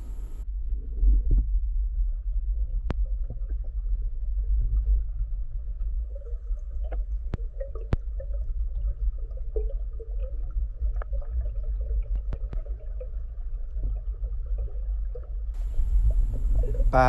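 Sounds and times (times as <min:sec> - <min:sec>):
low underwater rumble: 0:00.0 - 0:17.0
low croaking calls underwater: 0:12.7 - 0:17.0.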